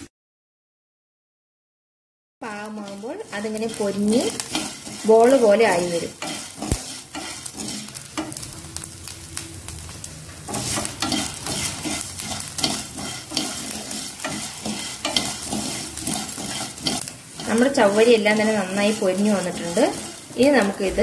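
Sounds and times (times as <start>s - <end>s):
light sizzle: 2.4s - 21.0s
spatula scraping a pan: 2.6s - 8.6s, 10.4s - 21.0s.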